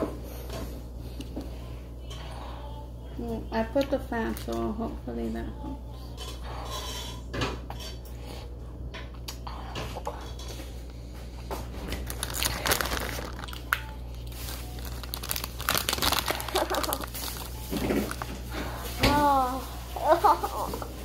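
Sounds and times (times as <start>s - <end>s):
low fan hum: 0.0s - 21.0s
plastic eggs clicking and clattering: 14.8s - 18.3s.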